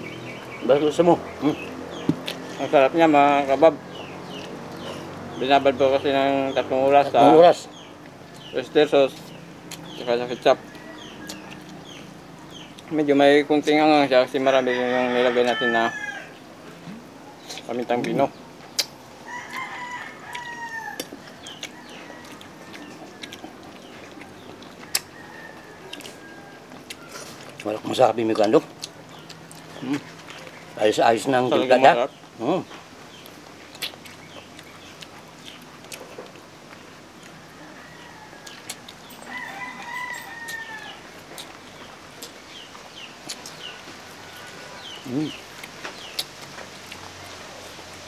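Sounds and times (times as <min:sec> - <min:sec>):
rooster crowing: 0:10.4 - 0:11.7, 0:14.4 - 0:16.4, 0:19.2 - 0:23.2, 0:24.8 - 0:27.4, 0:37.4 - 0:41.2, 0:43.8 - 0:45.1.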